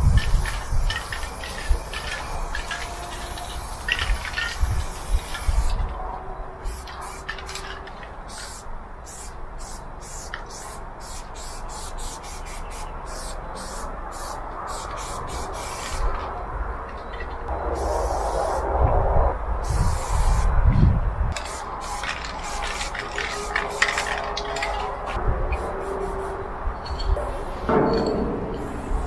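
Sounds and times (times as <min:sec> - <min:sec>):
spray paint can hissing: 0:00.0 - 0:05.8, 0:06.6 - 0:07.7, 0:08.3 - 0:16.2, 0:17.8 - 0:18.6, 0:19.6 - 0:20.5, 0:21.3 - 0:24.7, 0:25.6 - 0:26.4, 0:27.1 - 0:27.8, 0:28.5 - 0:29.0.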